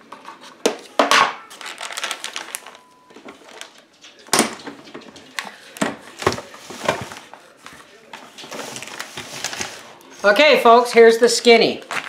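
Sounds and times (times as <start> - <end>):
plastic bags crinkling: 1.4 - 3.9, 8.5 - 12.0.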